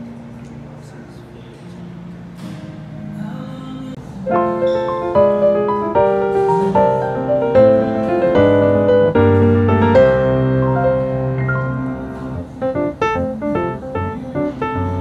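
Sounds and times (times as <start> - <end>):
gentle piano music: 4.1 - 15.0.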